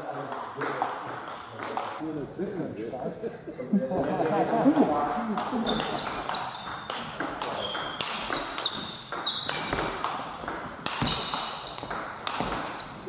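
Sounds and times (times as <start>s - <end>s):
table tennis ball hits: 0.1s - 2.0s, 4.6s - 13.0s.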